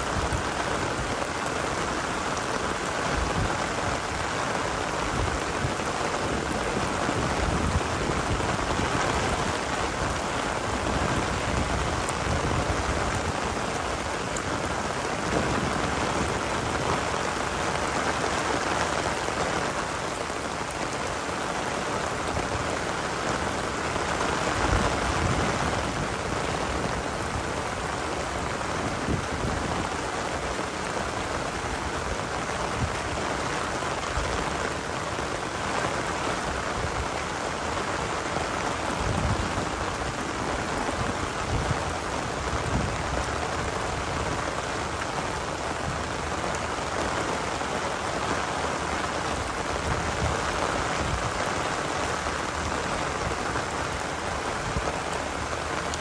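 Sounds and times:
steady rain falling: 0.0s - 56.0s.

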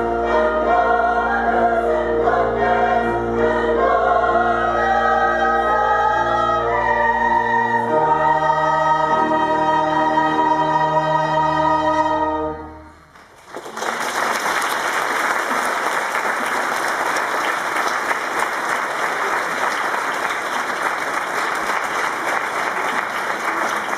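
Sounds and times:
choir holding a chord: 0.0s - 12.9s
audience applause: 13.1s - 23.9s.

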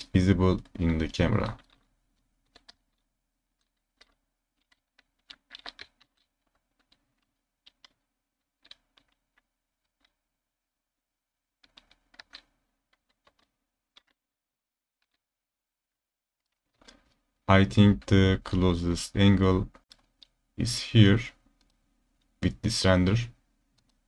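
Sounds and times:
keyboard keys clicking: 3.6s - 8.0s, 11.6s - 14.2s.

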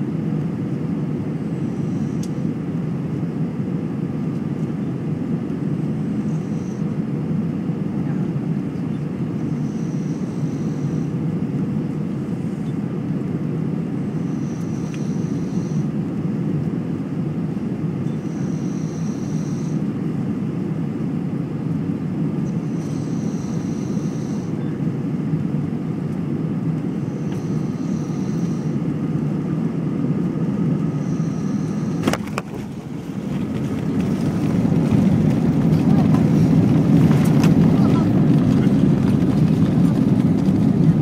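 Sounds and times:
jet engine rumble in cabin: 0.0s - 41.0s
faint high whistle: 6.3s - 6.9s, 9.5s - 11.1s, 14.2s - 15.8s, 18.1s - 19.8s, 22.7s - 24.7s, 27.0s - 28.7s, 30.9s - 32.0s.

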